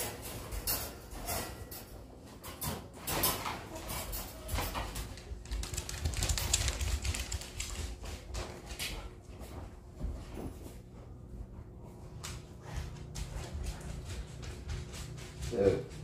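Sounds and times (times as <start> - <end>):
dog claws clicking on hard floor: 2.6 - 9.1.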